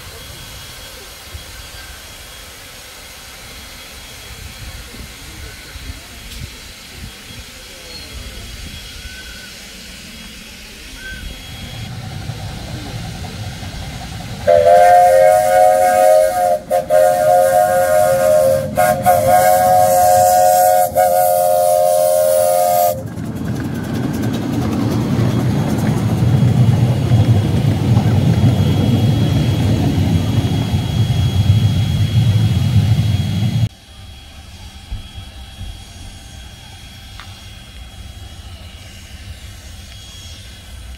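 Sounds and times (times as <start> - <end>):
steady low rumble: 9.6 - 21.5, 22.1 - 40.9
train chime whistle: 14.5 - 23.0.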